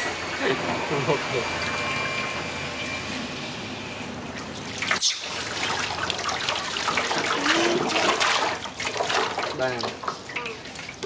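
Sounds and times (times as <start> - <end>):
water splashing: 4.4 - 11.0
water trickling into metal basin: 4.4 - 11.0.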